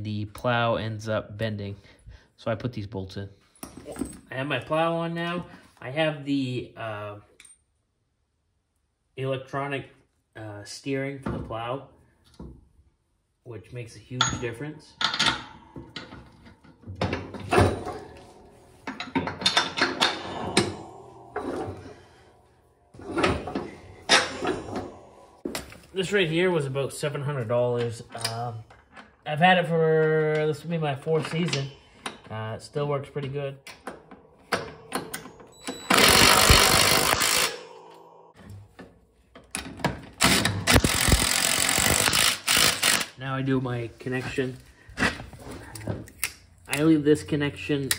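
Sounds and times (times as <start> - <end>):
metal parts clanking and clicking: 14.2 - 20.7.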